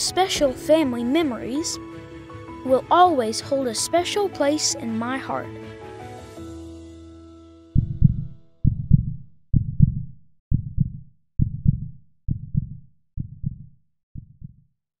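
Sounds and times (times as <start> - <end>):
heartbeat double thumps: 7.8 - 14.7.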